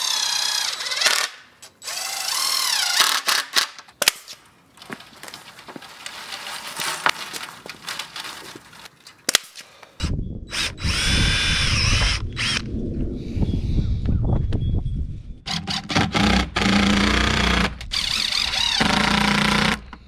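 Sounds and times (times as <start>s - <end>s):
wind rumbling on microphone: 10.0s - 16.3s.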